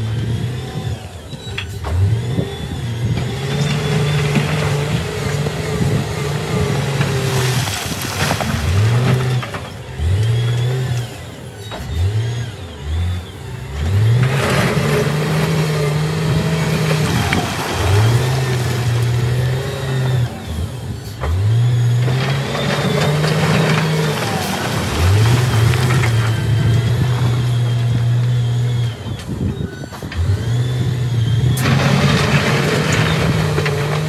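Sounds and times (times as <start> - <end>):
diesel engine revving: 0.0 - 34.0
rock grinding and tumbling: 6.5 - 11.0, 14.2 - 20.4, 22.0 - 28.1.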